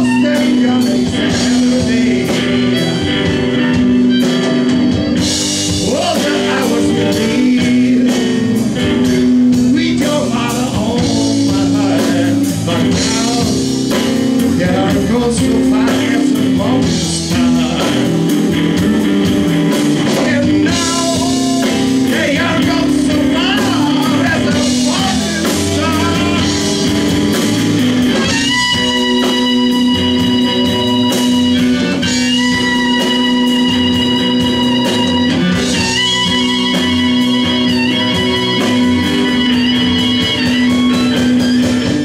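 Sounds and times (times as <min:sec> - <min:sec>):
harmonica wavering notes: 0:00.0 - 0:09.7, 0:10.4 - 0:42.0
blues-rock band playing: 0:00.0 - 0:42.0.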